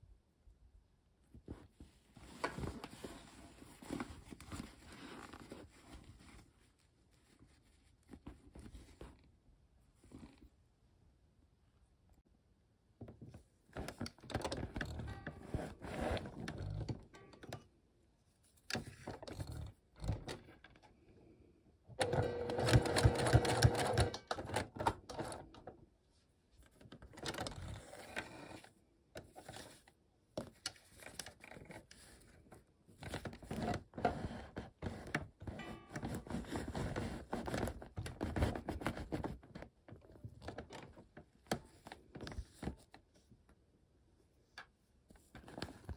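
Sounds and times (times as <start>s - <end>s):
sewing machine stitching: 22.0s - 25.6s.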